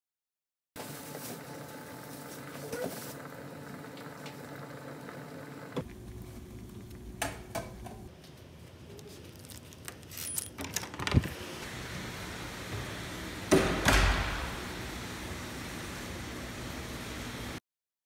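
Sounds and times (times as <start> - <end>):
door clicks and knocks: 13.5 - 14.6.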